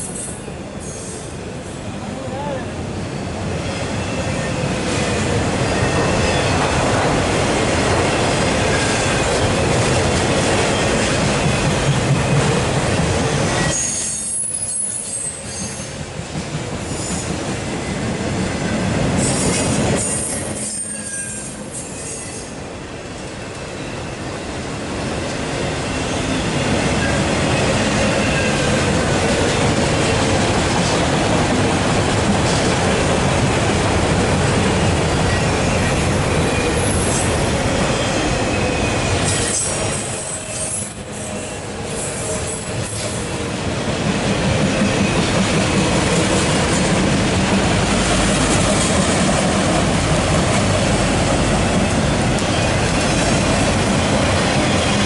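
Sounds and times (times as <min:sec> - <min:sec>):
freight cars rumbling on rails: 0:24.0 - 0:55.0.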